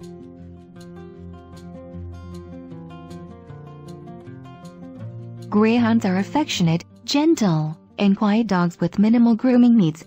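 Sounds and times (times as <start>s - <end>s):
music with sustained chords: 0.0s - 6.0s.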